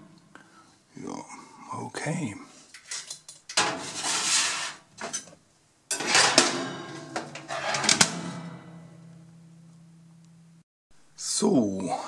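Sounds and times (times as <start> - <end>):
wire rack scraping and rattling: 2.7 - 9.1
low steady hum: 5.6 - 11.4.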